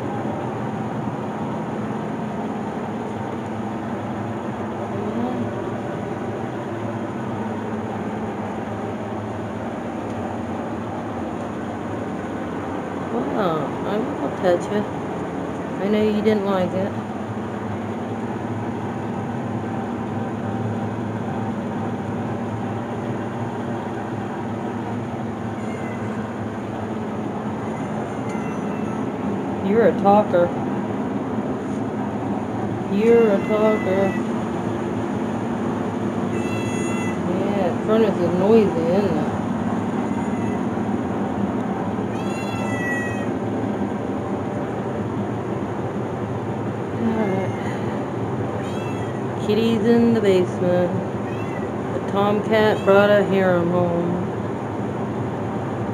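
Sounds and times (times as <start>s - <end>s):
furnace droning: 0.0s - 55.9s
cat meowing: 25.5s - 26.2s, 27.6s - 29.1s, 33.3s - 34.3s, 36.3s - 37.2s, 40.0s - 40.7s, 42.1s - 43.4s, 48.6s - 49.4s, 51.2s - 51.8s.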